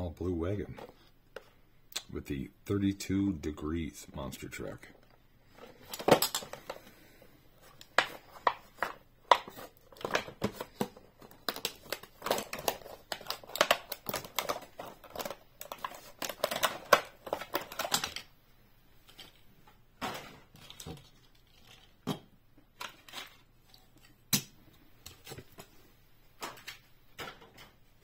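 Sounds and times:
plastic blister pack crackling: 7.7 - 18.3.

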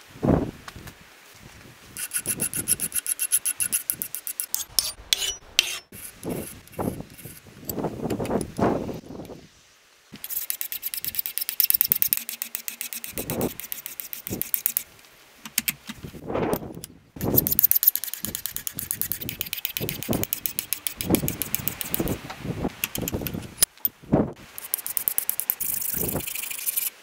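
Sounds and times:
wind rumbling on microphone: 0.0 - 3.0, 6.1 - 9.6, 13.2 - 13.6, 15.9 - 17.6, 18.2 - 24.5, 25.7 - 26.4
file rasping on steel: 2.0 - 7.4, 10.2 - 14.8, 17.3 - 22.2.

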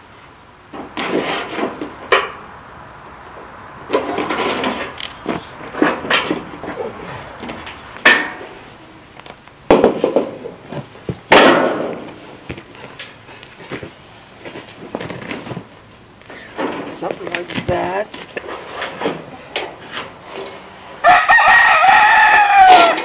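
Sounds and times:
metal clanking on steel sheet: 7.5 - 8.5.

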